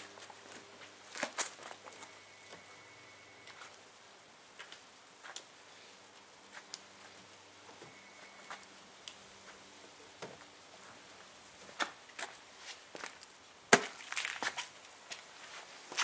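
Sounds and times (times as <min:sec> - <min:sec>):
footsteps on driveway: 0:00.0 - 0:02.7, 0:04.5 - 0:05.5, 0:10.2 - 0:16.0.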